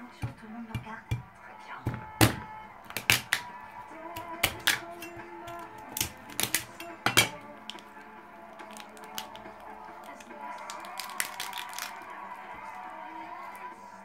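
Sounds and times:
soft background music: 0:00.0 - 0:14.0
knife chopping crab shell on board: 0:00.1 - 0:01.3, 0:01.9 - 0:03.5, 0:04.2 - 0:07.8, 0:08.7 - 0:11.9
shell cracking and clicking: 0:02.9 - 0:03.5, 0:04.2 - 0:12.2.

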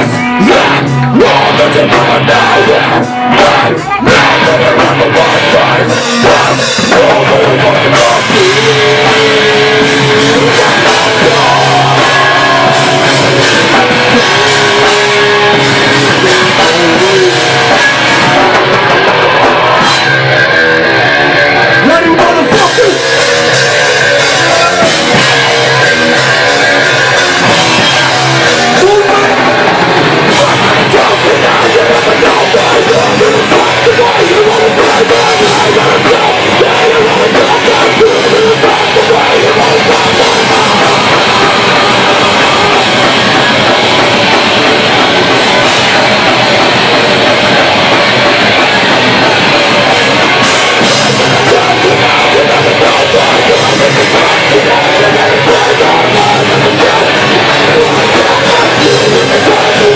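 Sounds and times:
heavy metal band playing: 0:00.0 - 0:59.9
vocalist shouting into microphone: 0:28.6 - 0:29.7.

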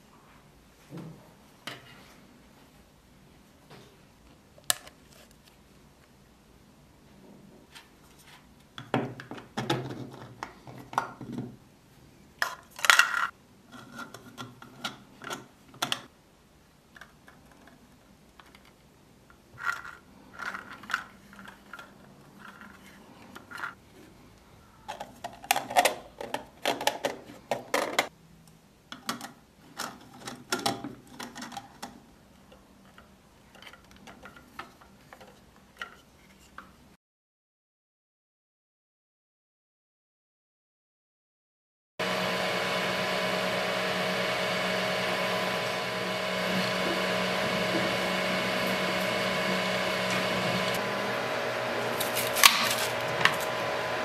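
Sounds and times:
plastic parts clicking and scraping: 0:16.9 - 0:23.8, 0:24.9 - 0:28.1, 0:28.9 - 0:36.8.

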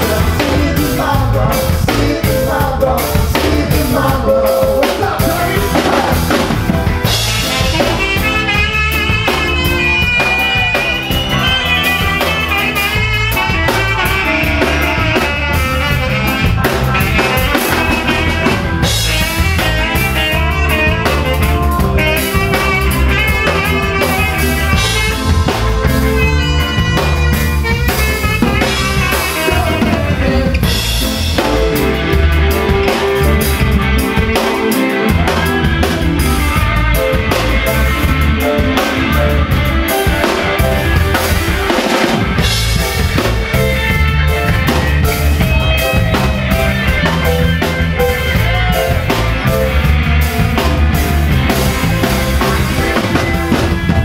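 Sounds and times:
person singing into a microphone: 0:00.0 - 0:06.5, 0:28.6 - 0:31.5
rock band playing: 0:00.0 - 0:54.0.

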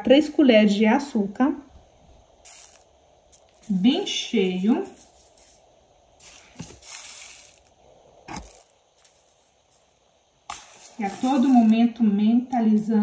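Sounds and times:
sugar pouring into water: 0:02.4 - 0:12.0.

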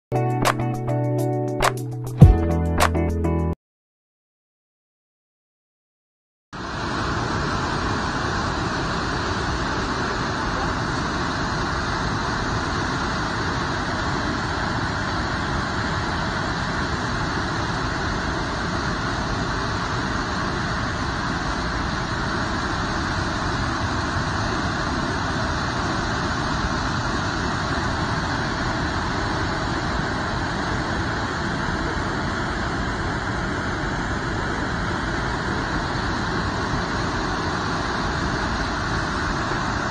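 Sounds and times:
waterfall rushing: 0:26.5 - 0:39.9.

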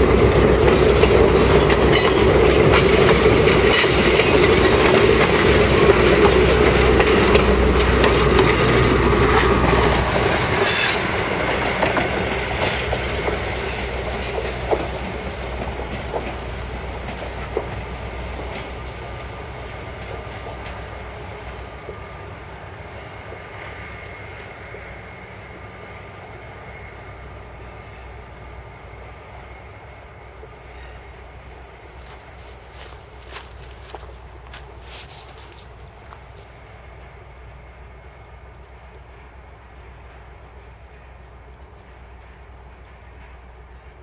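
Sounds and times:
train wheels clicking over rail joints: 0:00.0 - 0:22.1, 0:31.0 - 0:37.2.

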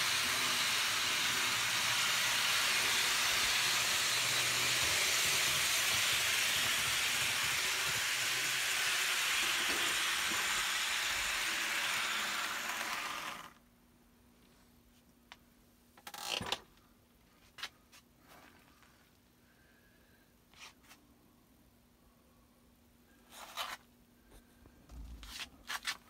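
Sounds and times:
model train whirring on track: 0:00.0 - 0:13.6.

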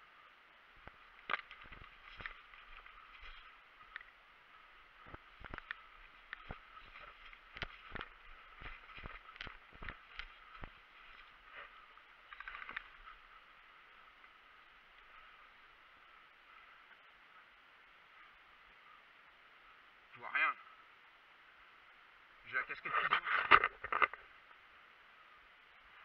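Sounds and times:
faint high hiss: 0:00.0 - 0:26.0
footsteps on dry forest floor: 0:00.8 - 0:13.4.

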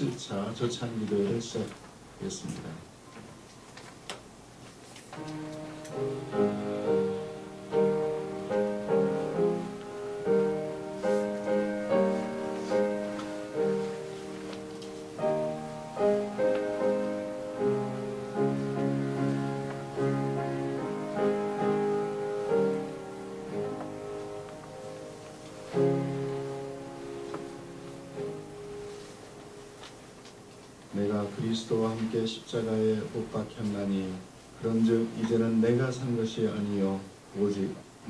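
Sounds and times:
slow piano chords: 0:05.1 - 0:33.5.

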